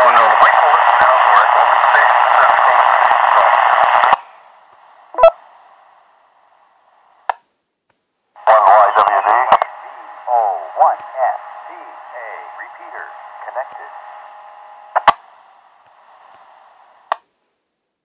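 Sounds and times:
radio voice in hiss and crackle: 0.0s - 4.3s, 5.1s - 5.4s, 8.4s - 17.2s.

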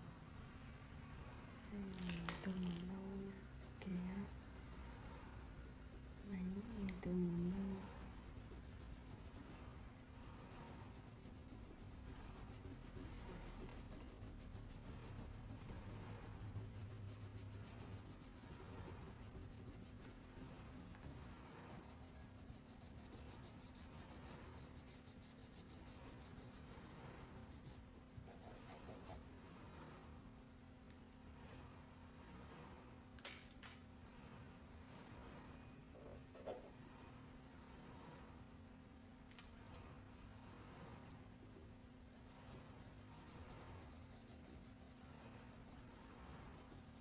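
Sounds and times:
crayon scratching on paper: 2.0s - 5.2s, 6.2s - 29.2s, 42.1s - 47.0s.

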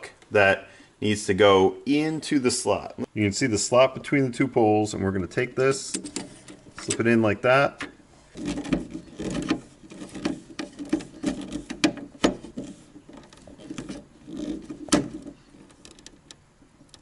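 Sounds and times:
screwdriver clicks and creaks: 15.5s - 17.0s.

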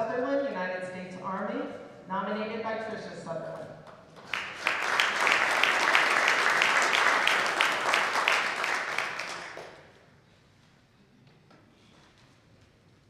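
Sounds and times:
nearby person clapping: 3.8s - 10.0s
audience applauding: 4.1s - 10.0s.

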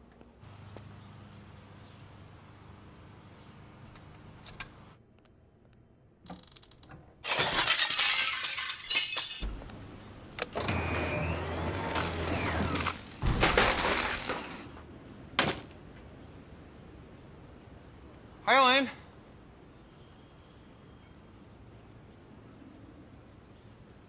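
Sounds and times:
small clicks: 3.8s - 7.0s
glass breaking: 7.2s - 9.7s, 11.9s - 14.6s
glass shards clinking: 7.3s - 9.5s.

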